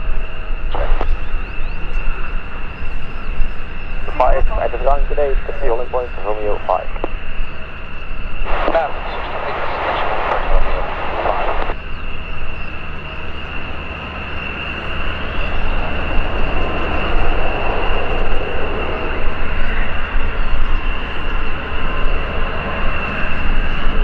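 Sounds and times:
turbine aircraft engines whining: 0.0 - 24.0
broad rushing noise: 4.1 - 11.8.

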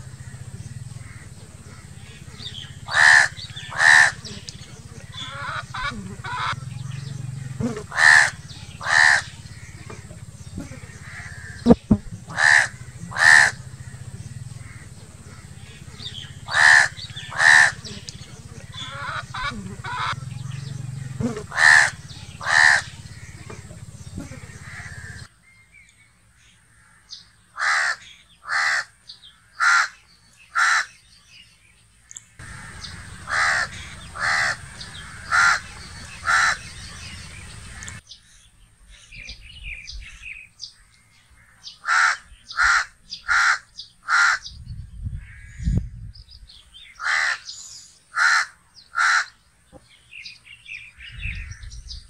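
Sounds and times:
crow cawing: 0.0 - 7.0, 7.8 - 11.6, 12.3 - 20.6, 21.3 - 25.3, 26.7 - 31.0, 32.4 - 38.0, 41.4 - 44.5, 47.0 - 49.4.

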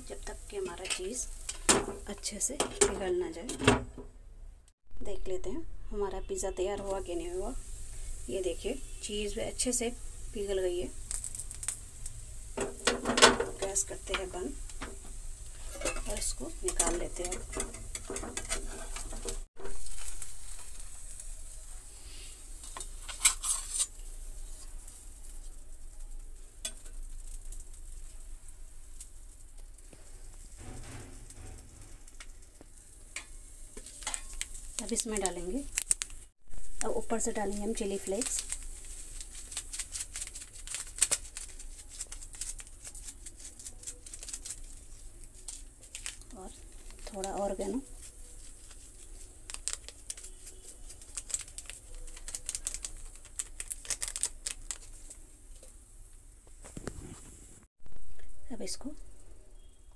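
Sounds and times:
food sizzling: 0.0 - 3.4, 5.9 - 56.0
chili flakes pattering on pizza: 6.5 - 21.8, 22.4 - 56.0
metal spatula scraping a pan: 12.6 - 21.1, 22.1 - 24.7, 30.0 - 32.4.

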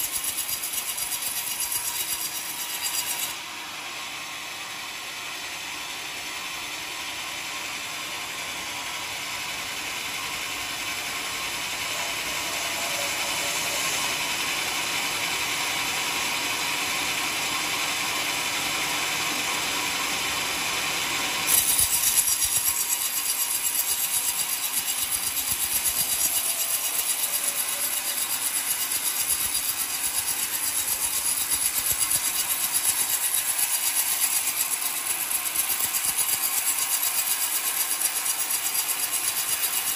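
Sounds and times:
band sawmill sawing log: 20.6 - 39.9.

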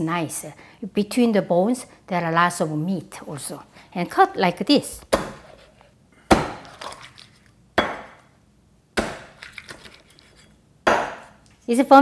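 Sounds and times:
cleaver chopping on wooden board: 5.1 - 5.5, 6.3 - 6.8, 7.8 - 8.2, 9.0 - 9.5, 10.9 - 11.3.

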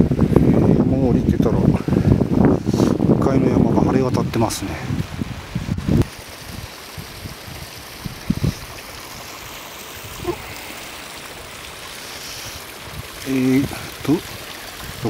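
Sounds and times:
mountain stream rushing: 4.3 - 15.0.

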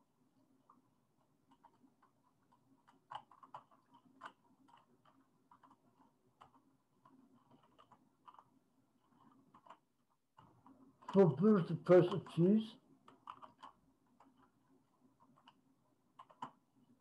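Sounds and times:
faint low hum: 0.0 - 17.0
keyboard typing clicks: 16.2 - 16.6.

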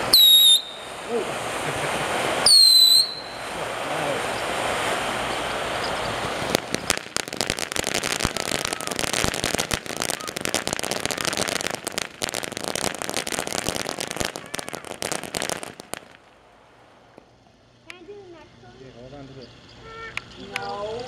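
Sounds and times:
firework fountain crackling: 0.0 - 21.0.

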